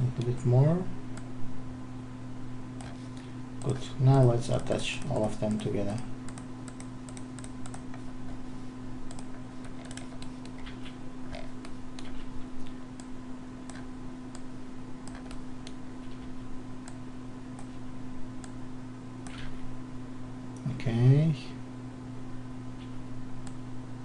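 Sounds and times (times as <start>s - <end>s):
low electrical hum: 0.0s - 24.0s
mouse and keyboard clicks: 9.1s - 12.3s.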